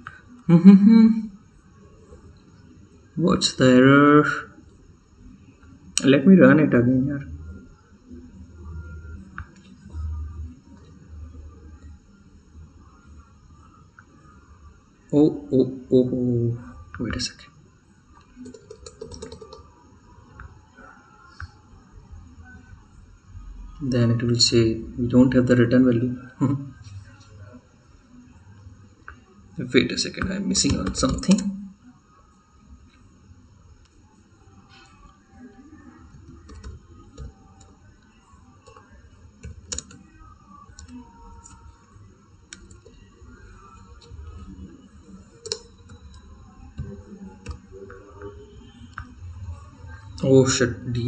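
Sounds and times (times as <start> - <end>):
keyboard keystrokes: 18.4 - 19.6.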